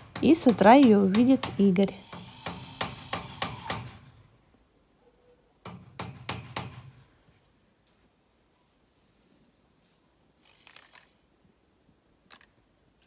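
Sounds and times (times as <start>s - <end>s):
knocking on metal frame: 5.7s - 6.9s.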